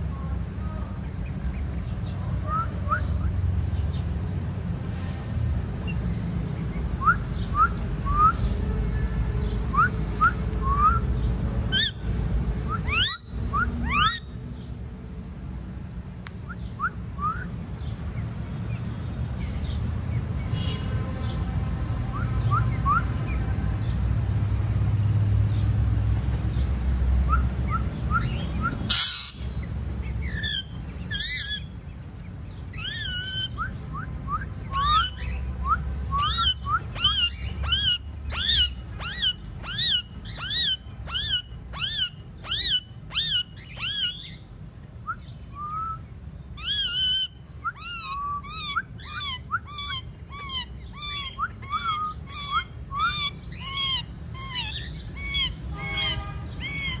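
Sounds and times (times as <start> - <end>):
parakeets screeching: 11.7 - 12.1, 12.8 - 14.4, 27.8 - 33.7, 34.6 - 44.5, 46.6 - 57.0.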